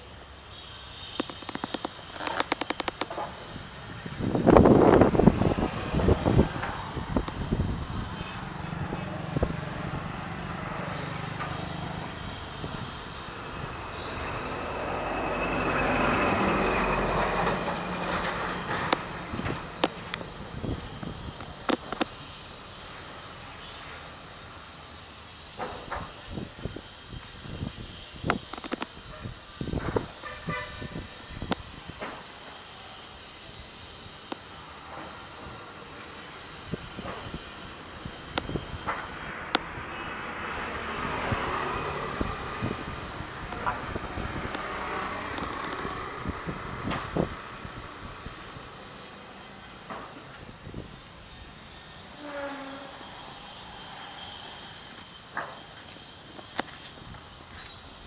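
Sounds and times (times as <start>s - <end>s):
outdoor background hiss: 0.0s - 58.0s
sharp clicks: 1.1s - 3.3s, 28.3s - 28.9s.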